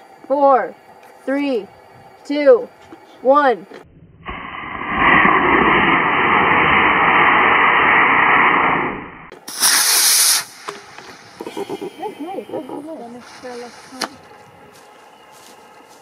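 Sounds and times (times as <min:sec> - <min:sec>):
bright rushing burst: 0:04.2 - 0:11.4
rocket motor exhaust hissing: 0:04.3 - 0:14.4.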